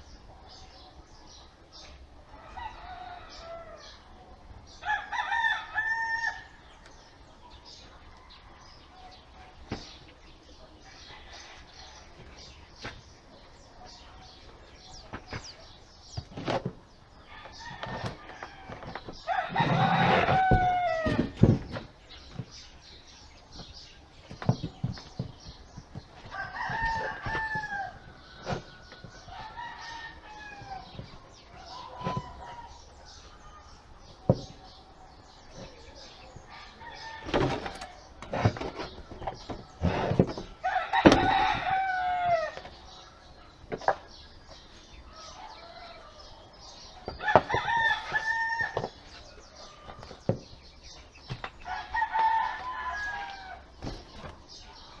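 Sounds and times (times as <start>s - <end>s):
rooster crowing: 17.4s - 21.3s, 26.3s - 28.0s, 40.6s - 42.6s, 47.2s - 48.8s, 51.7s - 53.6s.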